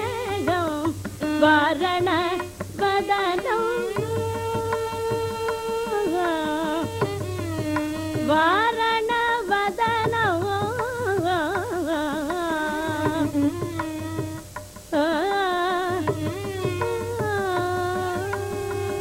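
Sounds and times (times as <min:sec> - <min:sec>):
soft hand drum strokes: 0:00.0 - 0:19.0
woman singing ornamented phrases: 0:00.0 - 0:19.0.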